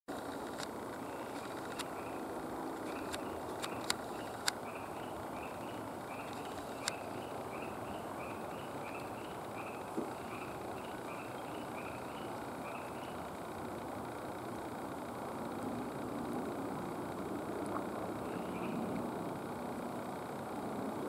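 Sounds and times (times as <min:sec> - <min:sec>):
sharp clicks: 0:00.1 - 0:08.0
outdoor background rumble: 0:00.1 - 0:21.0
small animal chirping: 0:02.9 - 0:13.3, 0:18.2 - 0:18.9.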